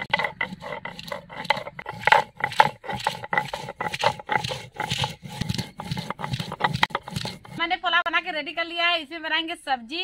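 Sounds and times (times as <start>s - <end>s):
stone roller scraping on grinding stone: 0.0s - 7.8s.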